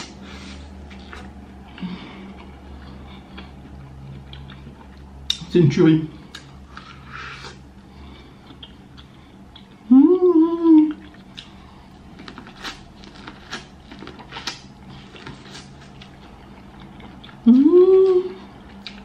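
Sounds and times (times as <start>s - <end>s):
chewing corn on the cob: 0.0s - 5.5s, 10.9s - 19.0s
woman humming: 9.9s - 11.1s, 17.5s - 18.4s.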